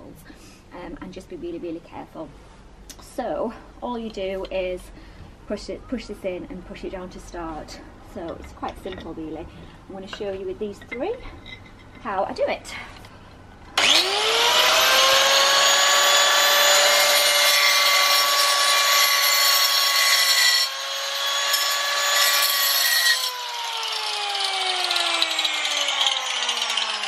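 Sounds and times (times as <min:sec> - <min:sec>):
angle grinder whining: 0:13.8 - 0:27.0
grinder cutting into brick: 0:13.8 - 0:27.0.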